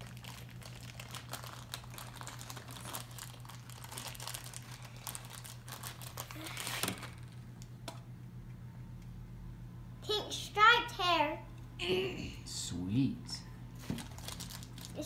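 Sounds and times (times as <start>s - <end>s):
plastic wrappers crinkling: 0.0s - 7.5s, 13.8s - 15.0s.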